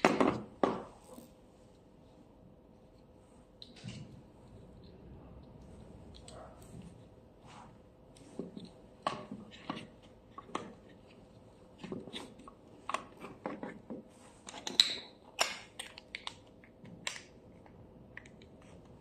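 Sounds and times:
plastic clicks and handling: 14.4s - 19.0s.

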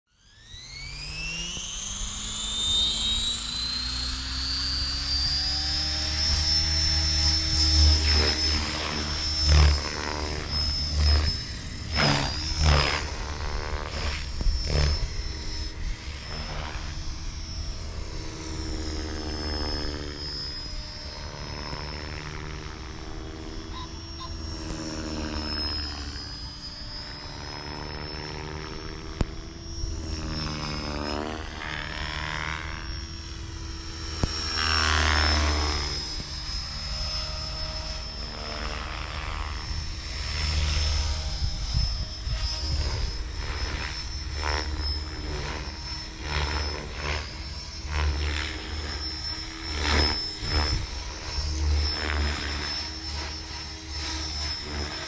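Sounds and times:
rc helicopter rotor whine: 0.0s - 55.0s.

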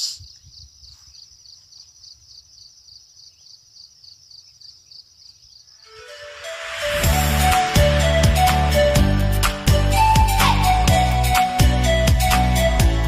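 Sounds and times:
insect chirping: 0.0s - 6.0s
music: 5.8s - 13.0s.

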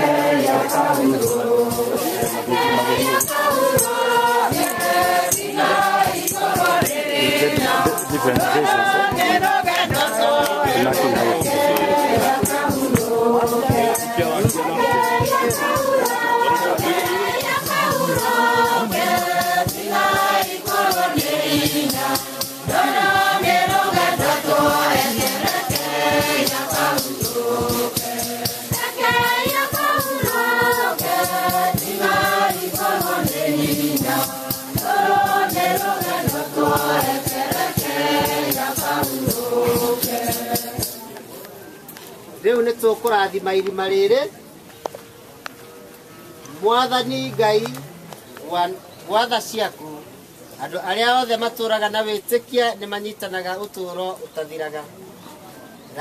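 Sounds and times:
shaken rattle: 0.0s - 41.2s
group singing a hymn: 0.0s - 41.5s.

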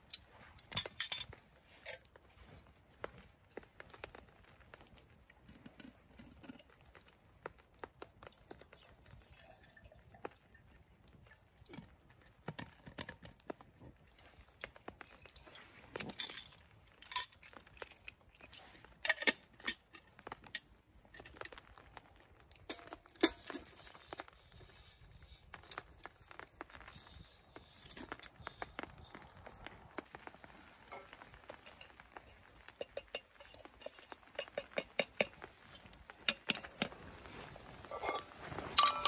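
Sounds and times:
wood fire crackling: 0.0s - 39.0s
metal clinks: 0.2s - 2.0s, 37.9s - 39.0s.

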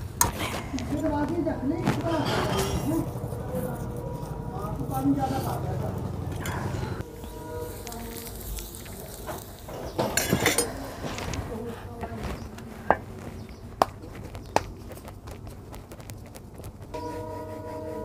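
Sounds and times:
utensils and plates clattering: 1.8s - 4.2s, 6.0s - 7.0s, 8.4s - 11.3s.

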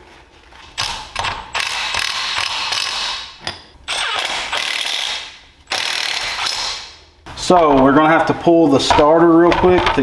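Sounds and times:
cordless power tool driving bolt: 3.9s - 6.8s.

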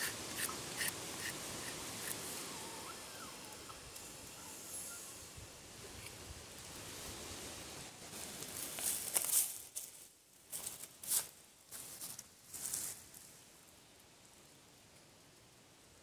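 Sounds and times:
footsteps on dry leaves: 7.9s - 13.3s.

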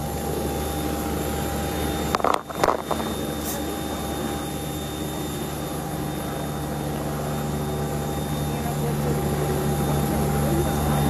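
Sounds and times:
steady engine drone: 0.0s - 11.0s
phone microphone handling crackle: 2.1s - 3.2s.

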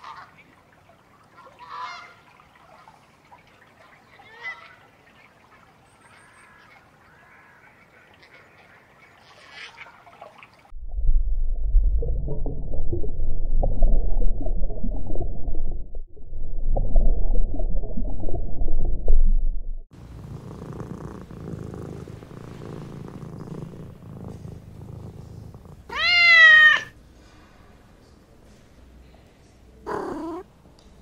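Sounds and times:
cat purring: 20.0s - 26.0s, 29.9s - 30.4s
cat meowing: 25.9s - 26.9s, 29.9s - 30.4s.

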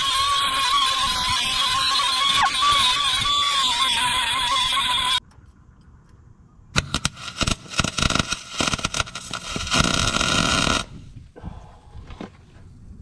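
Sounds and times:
welding arc crackling and sizzling: 6.8s - 11.0s.

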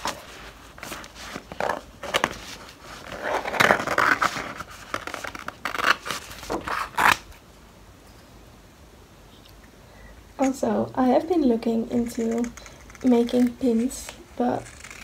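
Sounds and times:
paper rustling: 0.0s - 7.2s.

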